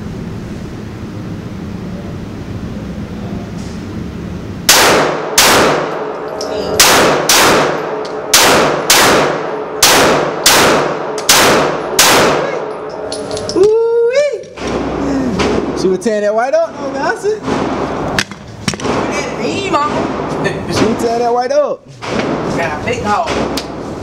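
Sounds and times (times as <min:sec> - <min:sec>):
pistol shots with echo: 0:04.7 - 0:13.0.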